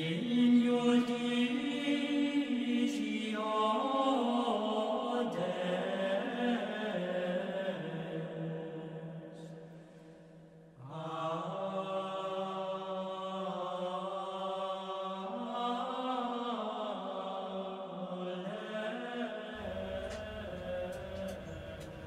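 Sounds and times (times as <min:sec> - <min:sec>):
slow chant-like music: 0:00.0 - 0:22.0.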